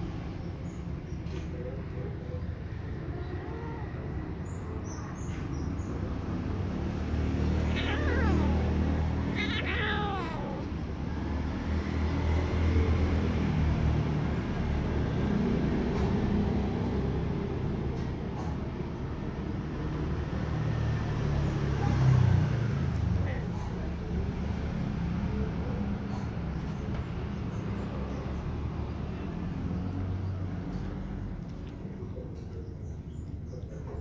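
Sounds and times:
kitten meowing: 7.6s - 10.8s.

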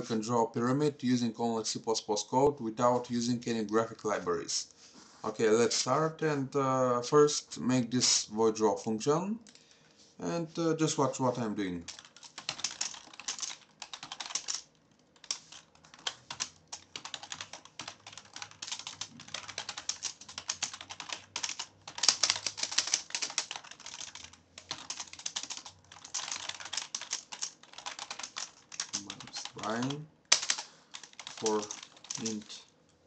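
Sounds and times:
typing on computer keyboard: 11.9s - 32.5s.

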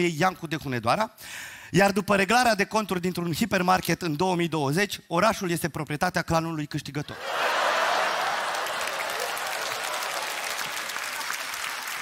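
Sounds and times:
audience applauding: 7.2s - 12.0s.

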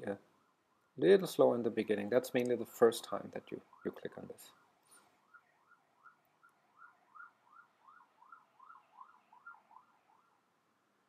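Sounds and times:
faint siren sweeping up and down: 3.4s - 10.8s.

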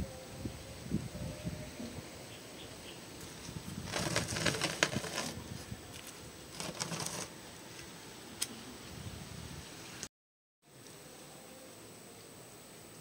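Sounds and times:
rustling and crinkling: 3.2s - 7.9s.

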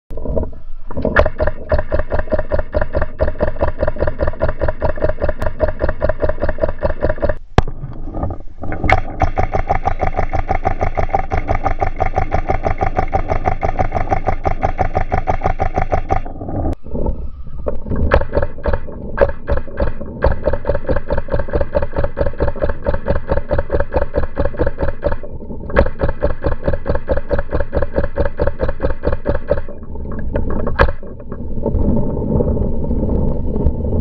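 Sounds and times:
slowed paintball marker firing: 1.2s - 7.8s, 8.8s - 16.3s, 18.0s - 29.8s.

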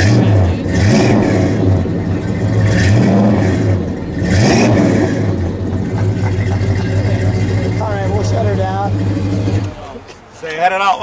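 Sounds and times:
engine revving: 0.0s - 10.0s
car engine idling with rumble: 0.0s - 10.4s.

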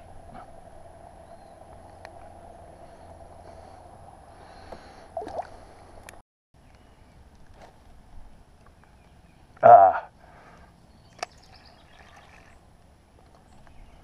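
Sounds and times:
water gurgling and dripping off paddle: 11.2s - 12.6s.

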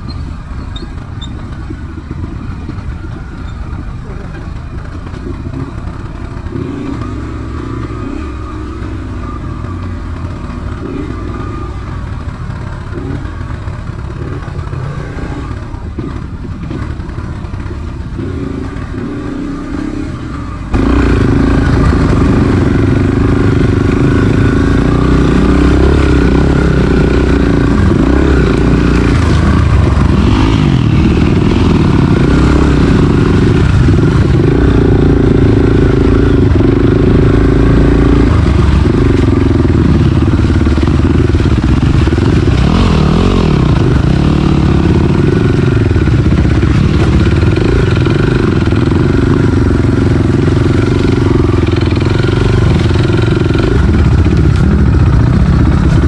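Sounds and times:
dirt bike engine revving: 5.5s - 11.8s, 18.2s - 56.0s.

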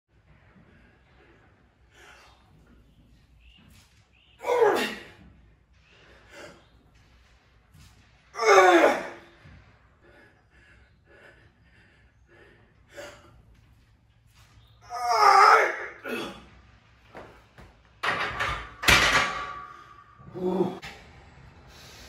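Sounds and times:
man groaning loudly: 20.3s - 20.8s.

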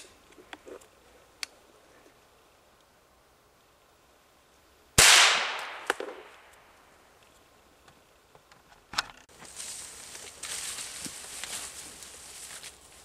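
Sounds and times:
gunshot echoing: 5.0s - 6.4s
rustling: 7.2s - 13.0s.

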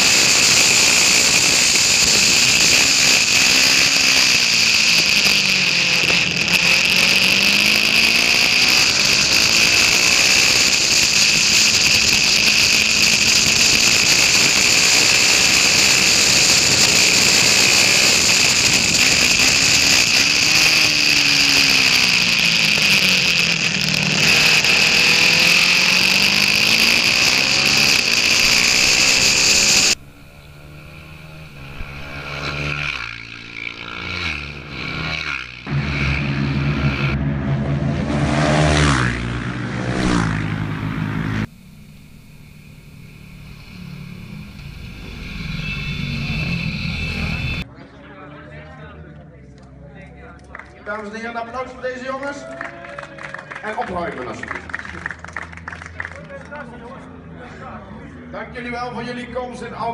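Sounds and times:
motorcycle engine revving: 0.0s - 47.7s.

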